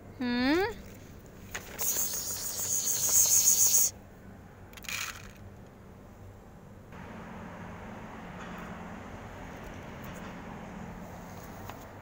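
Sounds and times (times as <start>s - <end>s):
loud high insect buzz: 1.7s - 4.0s.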